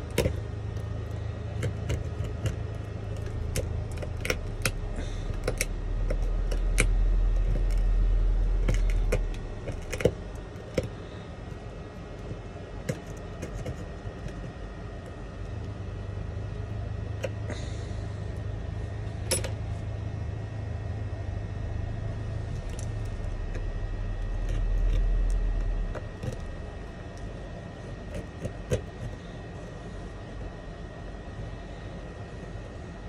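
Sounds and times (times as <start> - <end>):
glass chipping clicks and scrapes: 1.6 - 7.9, 8.5 - 10.9
low rumble: 17.8 - 28.1.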